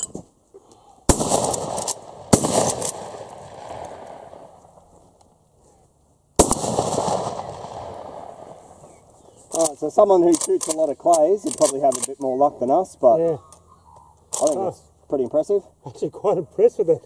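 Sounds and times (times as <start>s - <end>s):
shotgun shots with echo: 1.1s - 4.6s, 6.4s - 8.7s.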